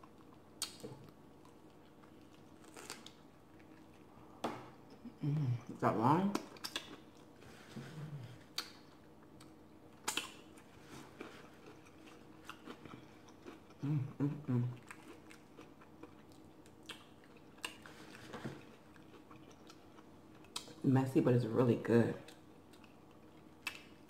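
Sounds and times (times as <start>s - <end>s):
chewing crispy fried food: 0.0s - 5.0s, 6.4s - 7.6s, 8.4s - 20.8s, 22.2s - 24.0s
person humming: 5.0s - 5.7s, 13.8s - 14.8s
lip smack: 10.0s - 10.4s.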